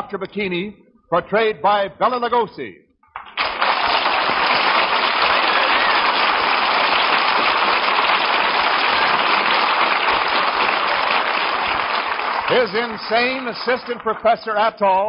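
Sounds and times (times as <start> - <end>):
studio audience applauding: 3.2 - 14.6.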